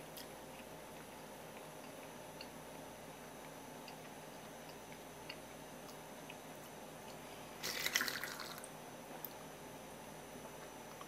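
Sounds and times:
liquid being poured: 0:07.6 - 0:08.7.

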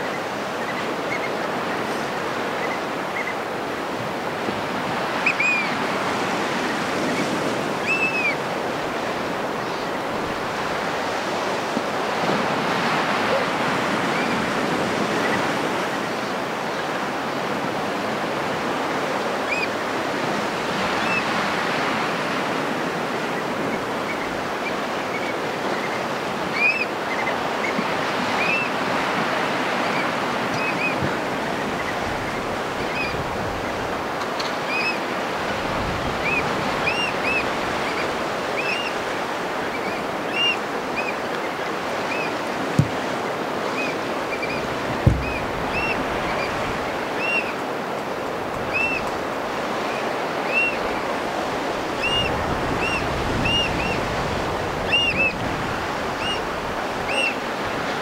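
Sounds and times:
ocean surf: 0:00.0 - 0:58.0
high whistled bird calls: 0:39.7 - 0:41.2.

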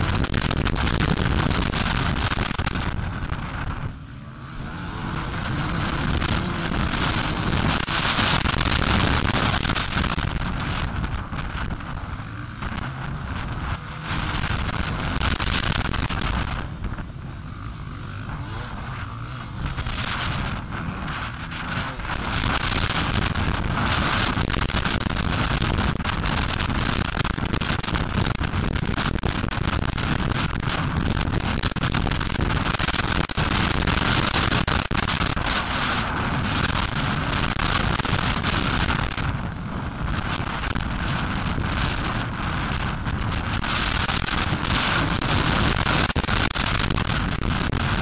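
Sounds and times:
motocross bike engine: 0:00.0 - 0:48.0
wind buffeting microphone: 0:18.2 - 0:48.0.

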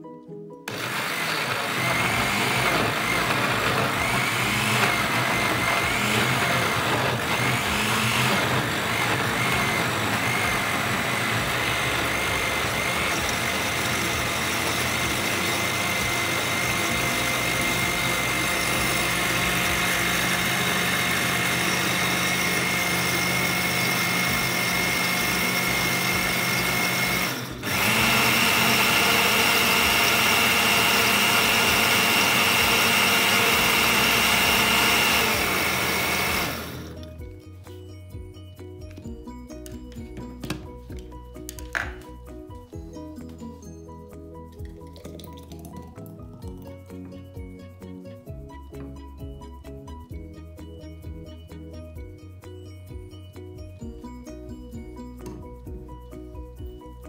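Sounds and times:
blender motor whining: 0:00.7 - 0:37.2.

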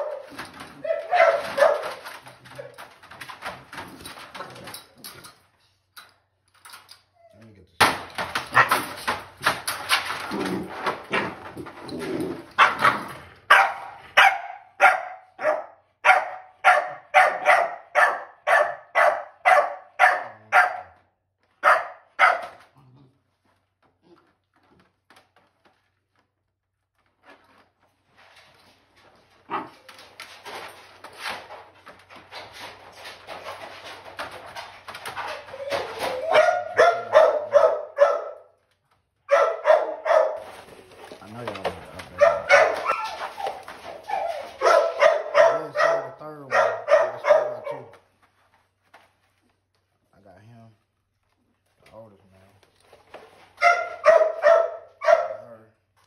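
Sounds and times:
dog barking: 0:00.0 - 0:02.0, 0:12.6 - 0:12.9, 0:13.5 - 0:21.0, 0:21.6 - 0:22.6, 0:36.2 - 0:38.6, 0:39.3 - 0:40.4, 0:42.2 - 0:43.4, 0:44.1 - 0:48.0, 0:53.6 - 0:55.6.

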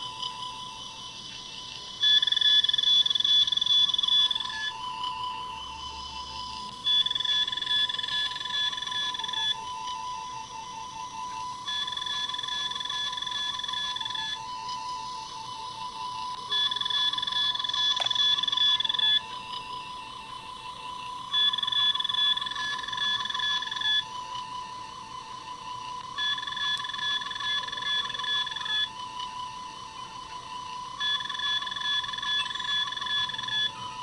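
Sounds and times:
two-tone electronic alert: 0:00.0 - 0:09.6, 0:11.7 - 0:14.4, 0:16.5 - 0:19.8, 0:21.3 - 0:24.2, 0:26.2 - 0:29.0, 0:31.0 - 0:34.0
electronic scanning warble: 0:00.0 - 0:34.0.

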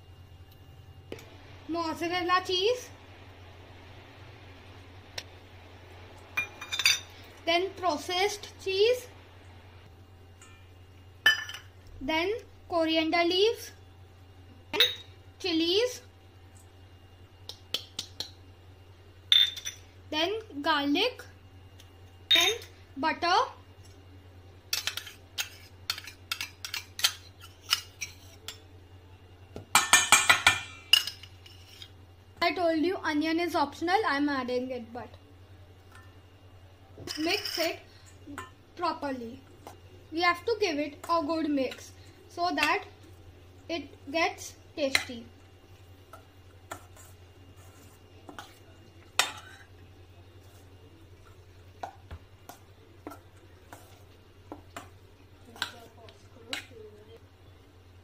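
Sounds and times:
metal spoon clinking on steel bowls: 0:06.4 - 0:07.2, 0:10.4 - 0:11.7, 0:14.8 - 0:15.1, 0:19.3 - 0:19.8, 0:22.3 - 0:22.7, 0:24.7 - 0:28.6, 0:29.7 - 0:31.9, 0:37.0 - 0:37.8, 0:49.2 - 0:49.7
food stirred in steel bowl: 0:24.7 - 0:28.7, 0:31.0 - 0:32.0, 0:44.8 - 0:57.0.

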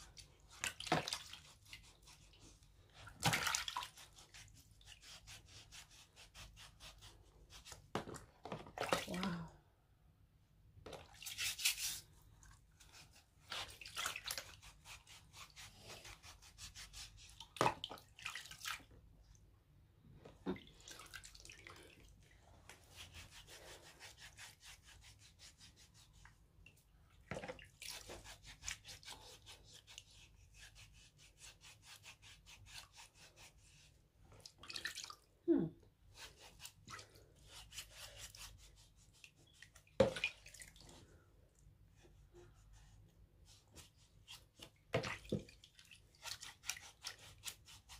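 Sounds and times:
feet scrubbed with bristle brush: 0:00.0 - 0:07.9, 0:11.1 - 0:12.1, 0:12.8 - 0:17.8, 0:22.7 - 0:26.4, 0:27.4 - 0:34.0, 0:36.1 - 0:40.9, 0:42.0 - 0:47.9.

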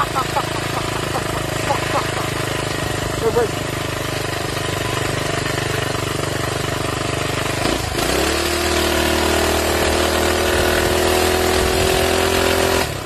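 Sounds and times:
small gas engine running: 0:00.0 - 0:13.0.

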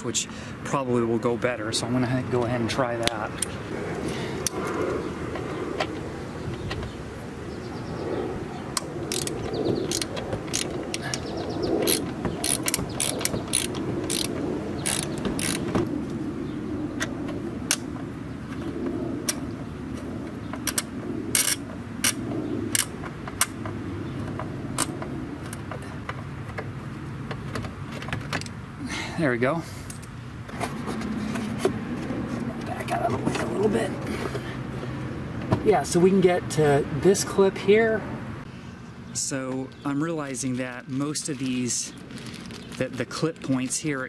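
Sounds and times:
ratchet pawl clicking: 0:09.1 - 0:15.7.

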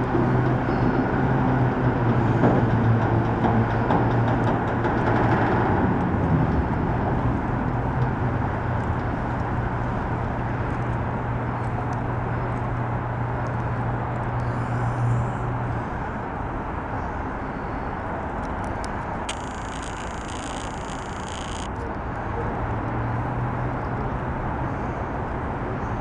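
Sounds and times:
motor humming: 0:19.3 - 0:21.7.

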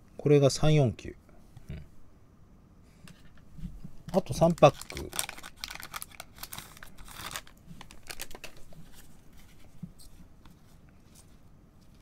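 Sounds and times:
cards rustling: 0:04.2 - 0:12.0
foil pack tearing and crinkling: 0:04.4 - 0:08.7.

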